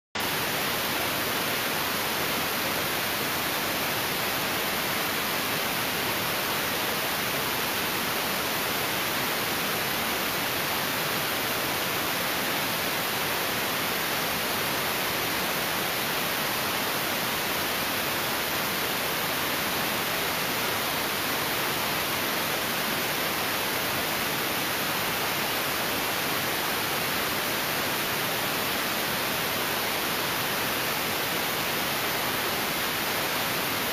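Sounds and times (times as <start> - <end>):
steady white noise hiss: 0.2 - 33.9.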